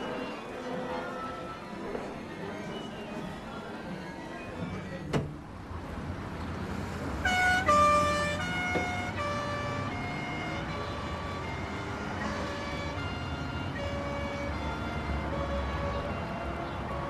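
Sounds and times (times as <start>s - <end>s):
two-tone siren: 7.3s - 17.0s.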